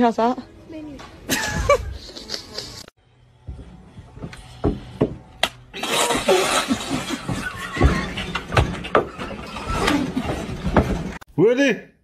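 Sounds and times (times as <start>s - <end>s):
group laughing: 1.3s - 2.9s.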